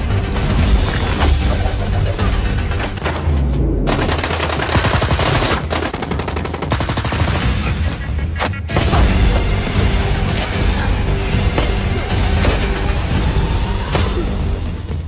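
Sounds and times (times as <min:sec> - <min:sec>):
automatic gunfire: 0:03.9 - 0:07.5.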